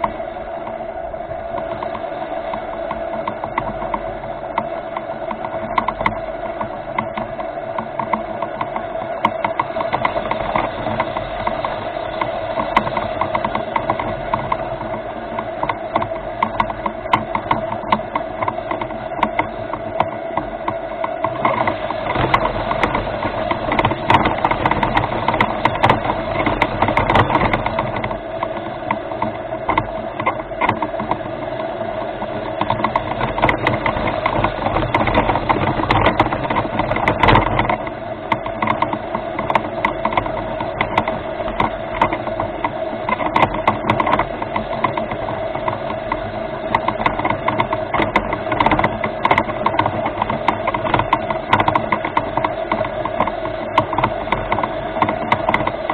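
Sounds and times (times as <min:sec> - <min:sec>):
electric motors whining: 0:00.0 - 0:55.9
clicks and rattles: 0:01.5 - 0:55.9.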